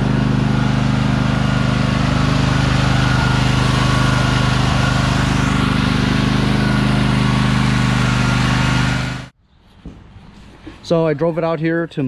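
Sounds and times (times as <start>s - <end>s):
lawn tractor engine running: 0.0s - 9.4s.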